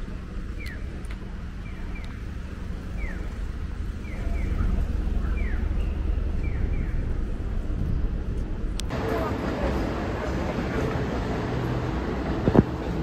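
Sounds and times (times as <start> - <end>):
road traffic: 0.0 - 13.0
crossing signal chirping: 0.5 - 7.4.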